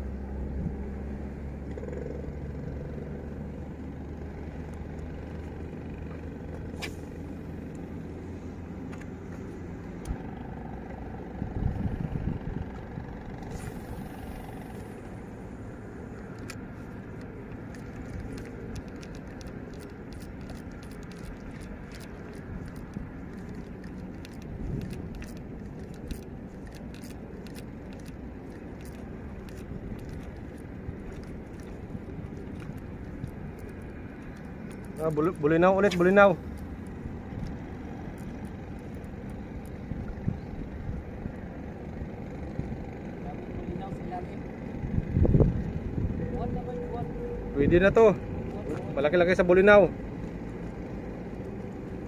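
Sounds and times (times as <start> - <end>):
low outdoor rumble: 0.0 - 52.0
fishing reel clicking: 16.1 - 39.8.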